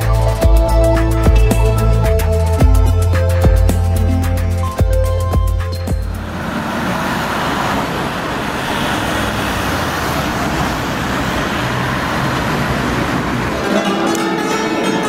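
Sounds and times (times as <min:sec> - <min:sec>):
electronic music with heavy bass: 0:00.0 - 0:06.4
ambient noise: 0:00.0 - 0:15.0.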